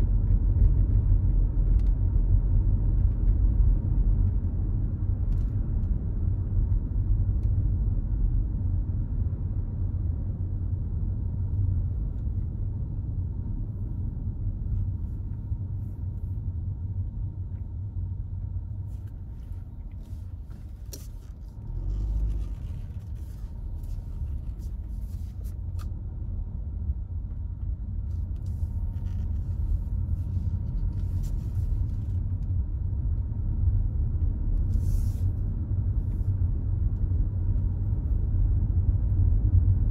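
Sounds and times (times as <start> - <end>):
tyre and engine rumble: 17.0 - 39.9.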